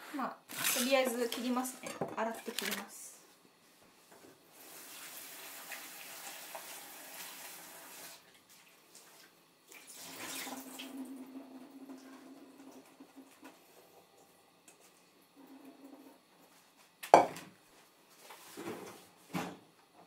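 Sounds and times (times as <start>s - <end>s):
kitchen tap running: 4.5s - 8.3s, 9.7s - 14.2s.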